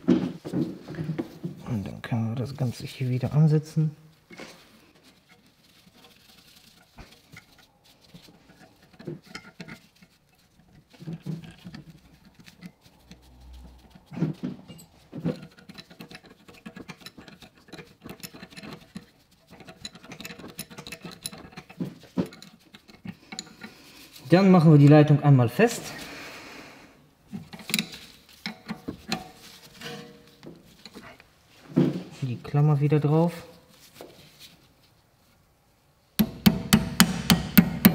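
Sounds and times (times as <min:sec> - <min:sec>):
small clicks and scrapes: 0:04.3 - 0:24.3, 0:27.3 - 0:31.3.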